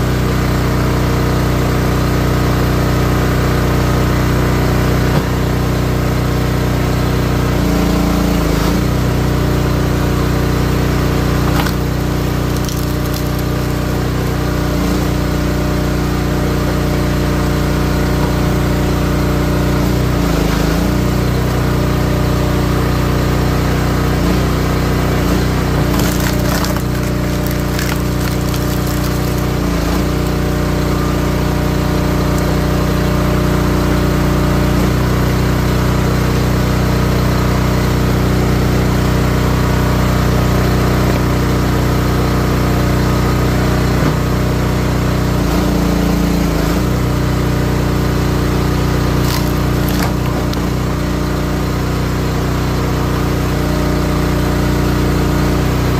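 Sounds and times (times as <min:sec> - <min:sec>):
log splitter engine running: 0:00.0 - 0:55.9
wood cracking and splintering: 0:11.2 - 0:14.5, 0:25.3 - 0:32.8, 0:49.0 - 0:51.1.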